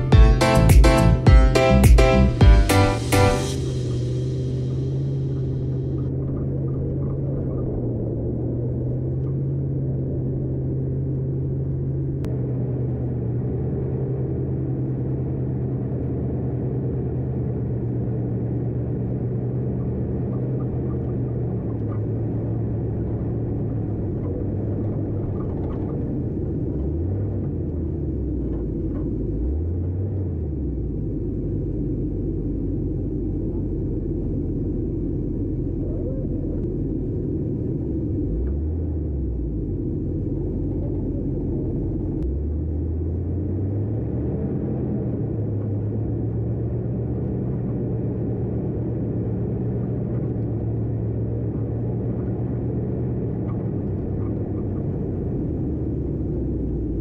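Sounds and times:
car engine revving: 0.0 - 57.0
wind and tyres rumbling: 3.6 - 57.0.

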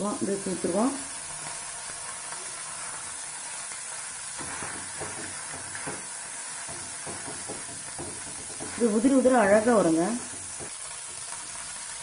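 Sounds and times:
food sizzling in hot oil: 0.0 - 12.0
wooden spatula scraping and tapping: 4.4 - 11.2.

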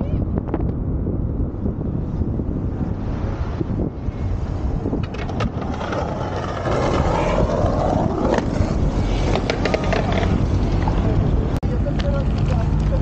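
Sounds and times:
wind on microphone: 0.0 - 13.0
skate wheels rolling over stone: 4.9 - 11.2.

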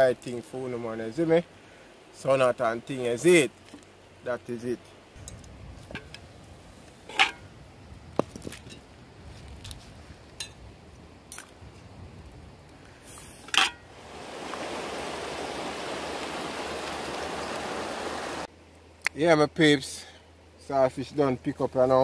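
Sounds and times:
water rushing: 13.5 - 18.5.

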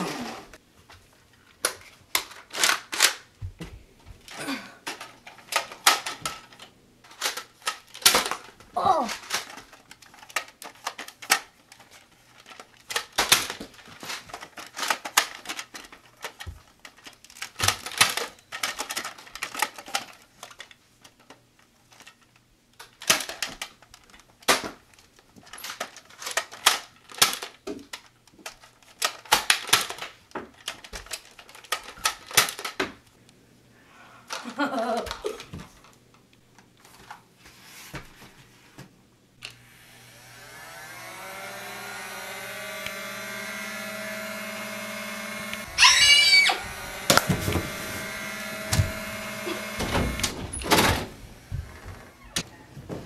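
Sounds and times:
toy blasters clacking: 41.9 - 50.8.

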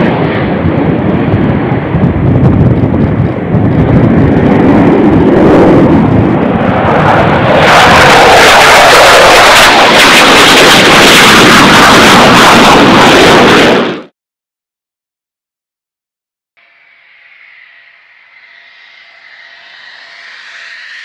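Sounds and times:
jet engine roar: 0.0 - 14.1, 16.6 - 21.0.

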